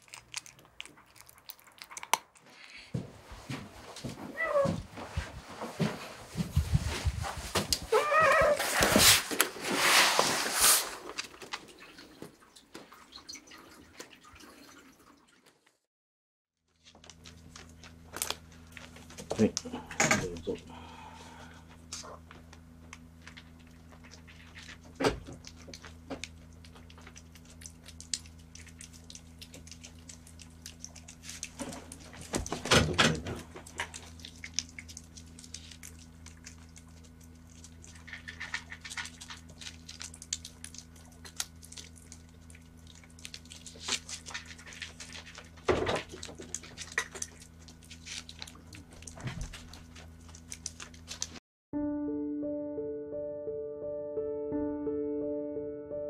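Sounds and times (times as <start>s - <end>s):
cat licking: 23.6s - 32.5s, 33.4s - 51.3s.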